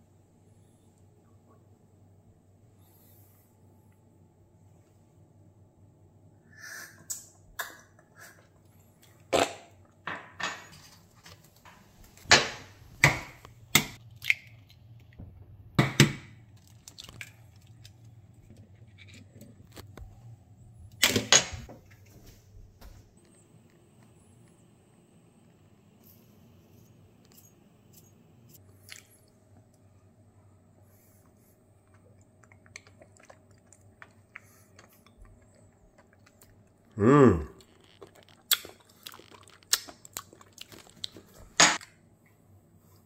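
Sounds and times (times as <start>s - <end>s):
eggshells cracking and clicking: 16.5s - 18.1s, 37.6s - 41.2s.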